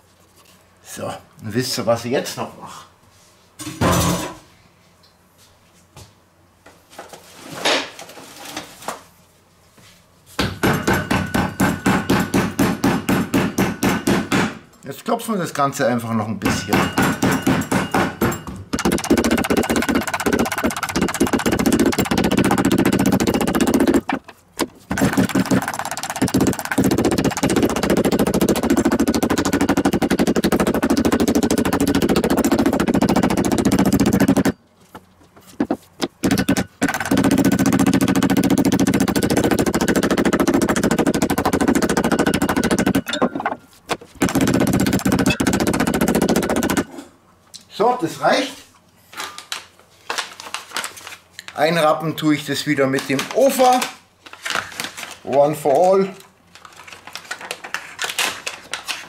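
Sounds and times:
meat tenderizer pounding meat: 10.4s - 14.6s, 16.5s - 34.6s, 35.7s - 43.3s, 43.9s - 46.9s.

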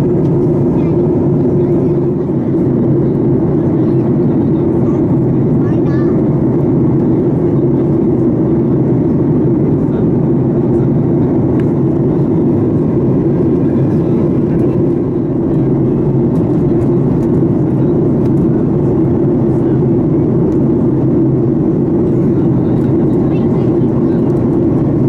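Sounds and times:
airplane cabin engine rush: 0.0s - 25.0s.

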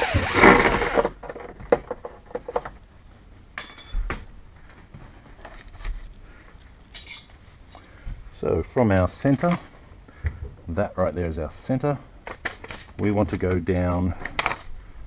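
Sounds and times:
bright metallic clink: 3.6s - 4.2s.

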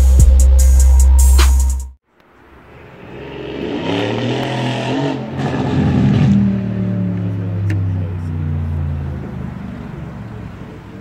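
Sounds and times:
car engine running: 5.8s - 11.0s.

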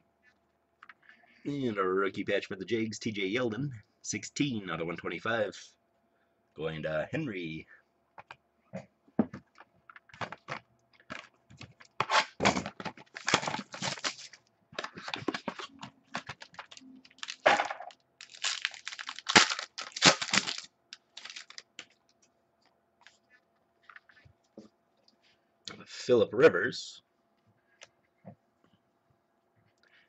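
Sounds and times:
wrapper tearing and crinkling: 13.0s - 15.5s, 16.2s - 21.8s.

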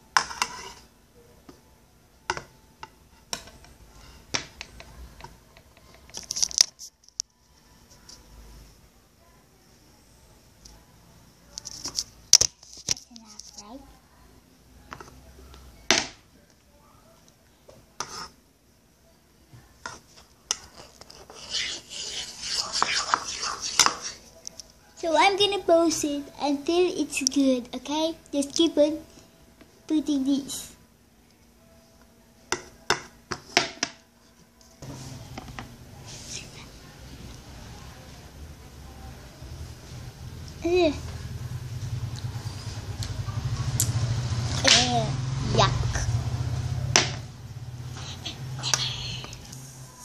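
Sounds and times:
scraping mixture in a bowl: 0.2s - 0.9s, 18.0s - 18.4s, 19.9s - 24.3s.

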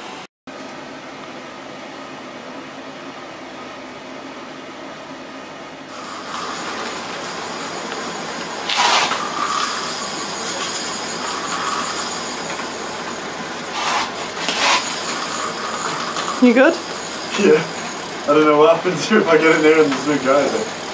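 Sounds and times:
fishing reel drag buzzing: 5.9s - 20.9s.

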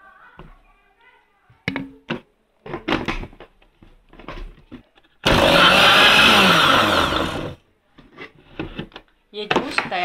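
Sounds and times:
blender running: 5.2s - 7.6s.

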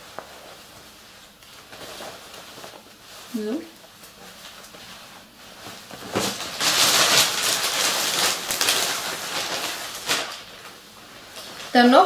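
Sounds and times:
fabric rustling: 0.0s - 12.0s.

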